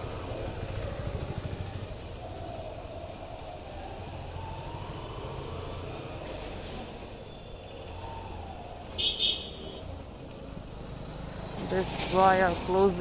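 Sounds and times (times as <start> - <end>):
motorcycle engine rumbling: 0.0 - 13.0
street traffic: 0.0 - 13.0
shrill horn blasts: 9.0 - 9.9.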